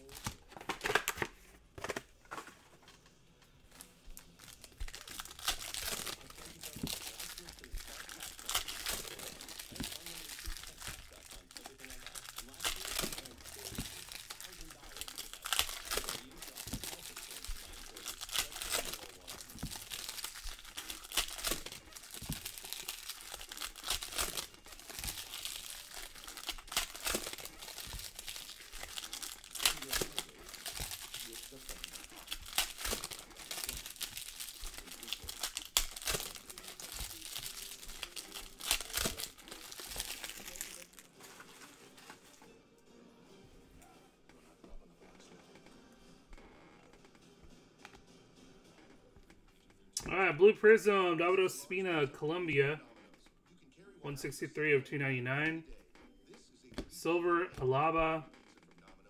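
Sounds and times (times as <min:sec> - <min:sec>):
plastic wrapper crinkling: 0:00.0 - 0:42.5, 0:55.4 - 0:58.9.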